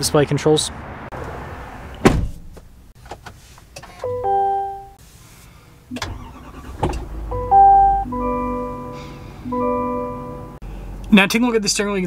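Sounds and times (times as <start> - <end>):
sharp thud: 2.0 - 2.6
two-note electronic chime: 7.4 - 10.6.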